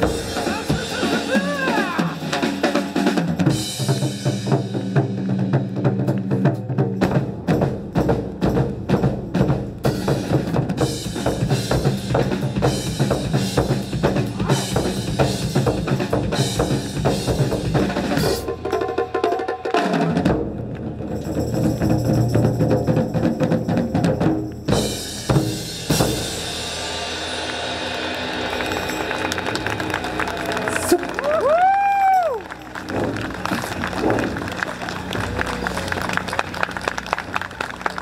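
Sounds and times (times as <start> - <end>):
taiko drum ensemble playing: 0.0 - 29.9.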